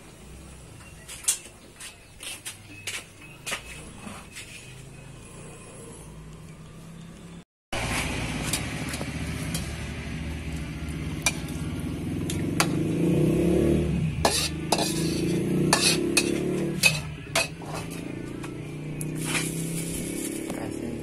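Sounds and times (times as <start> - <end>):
spatula scraping steel wok: 11.2 - 11.6, 14.2 - 18.2, 19.2 - 20.5.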